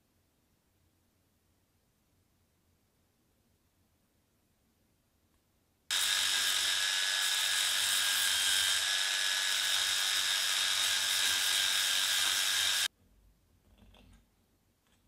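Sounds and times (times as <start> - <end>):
belt file grinding metal: 5.9 - 12.9.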